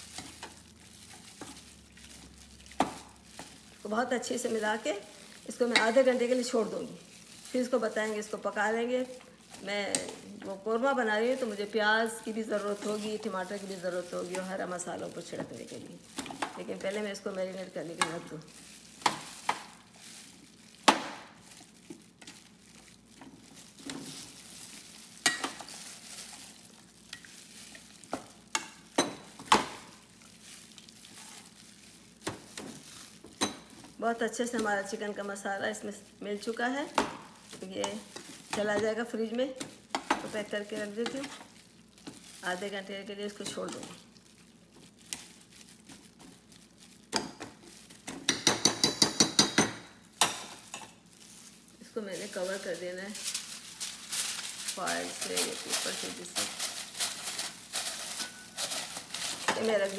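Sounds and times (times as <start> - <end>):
wet stirring noise: 0.0 - 59.9.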